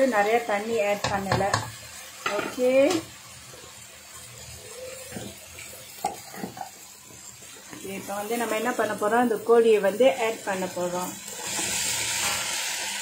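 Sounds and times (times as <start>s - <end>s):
food sizzling in oil: 0.0s - 13.0s
spatula knocking against pan: 1.0s - 2.6s.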